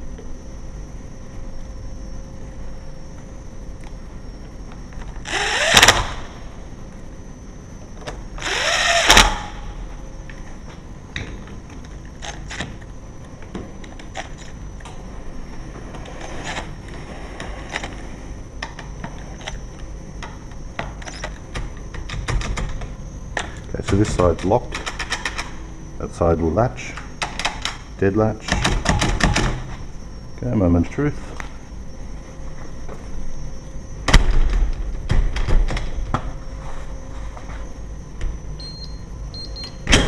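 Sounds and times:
drill motor whine: 5.1 - 6.4, 8.0 - 9.9.

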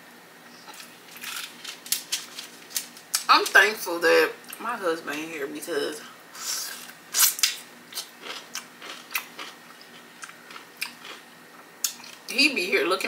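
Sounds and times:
pickle crunching while chewed: 0.7 - 3.3, 6.8 - 11.2.

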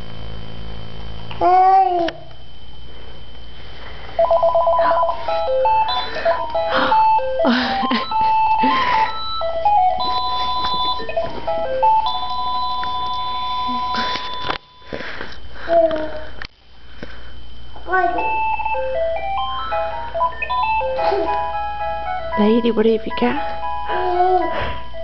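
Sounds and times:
toddler babbling: 1.4 - 2.2, 17.8 - 18.2, 23.9 - 24.5
phone handset electronic tones: 4.2 - 15.2, 18.2 - 22.5.

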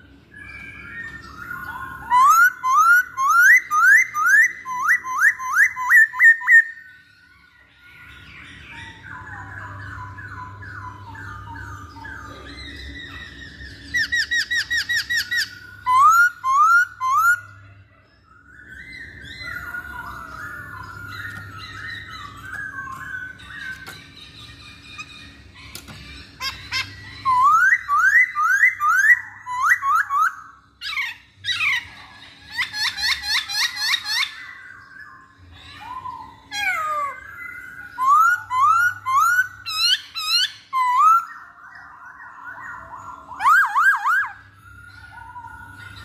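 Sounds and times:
bird whistling song: 0.0 - 46.0
bird chattering: 19.0 - 34.5.

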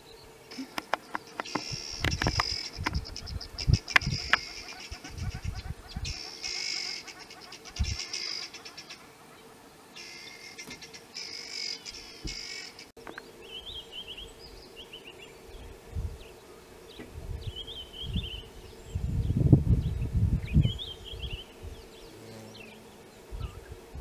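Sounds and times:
insects shrilling in bursts: 0.5 - 5.5, 6.1 - 9.2
small bird chirping: 0.5 - 9.0.

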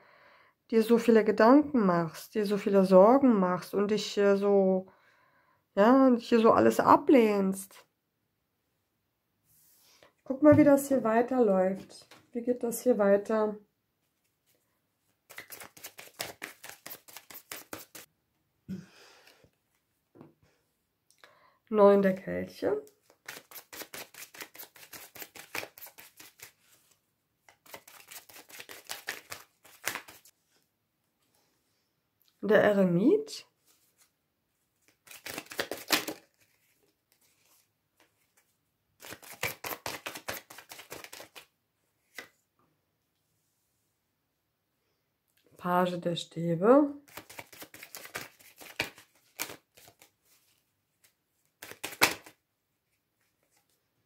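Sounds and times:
cards being shuffled: 15.3 - 18.1, 22.8 - 30.3, 34.8 - 42.4, 47.1 - 52.4.

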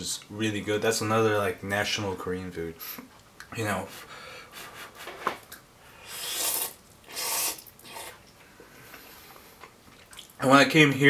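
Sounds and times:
person slurping noodles: 6.0 - 8.2.

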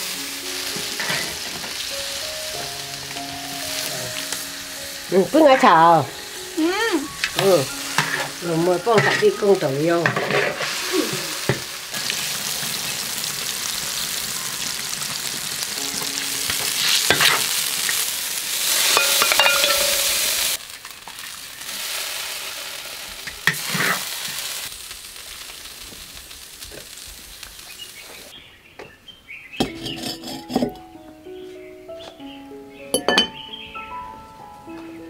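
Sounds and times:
food sizzling in a wok: 0.0 - 28.4
ladle scraping: 10.0 - 11.3
clay pot clinking: 18.8 - 20.4, 33.0 - 33.4.

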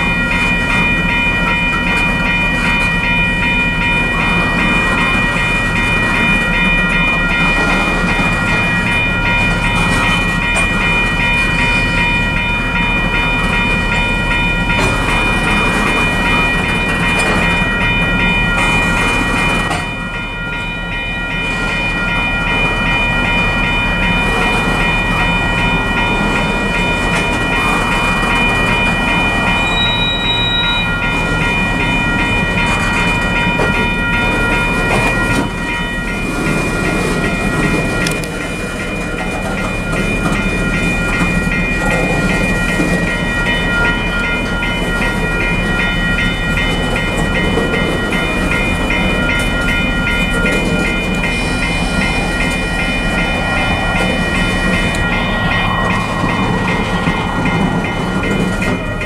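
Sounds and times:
train wheels rumbling on rail: 0.0 - 59.0
high-pitched wheel squeal: 29.6 - 30.9.

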